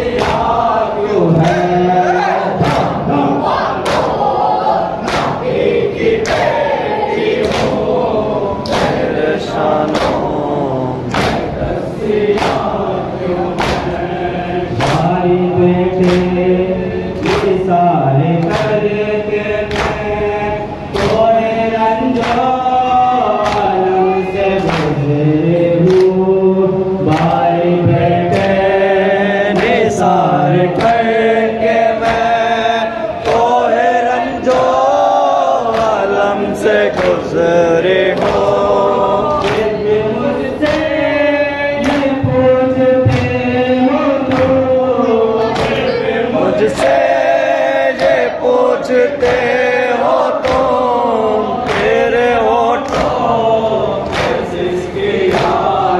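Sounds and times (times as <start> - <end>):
voices singing lament in chorus: 0.0 - 55.9
chest beating slaps: 2.6 - 3.2, 5.0 - 5.5, 11.1 - 11.6.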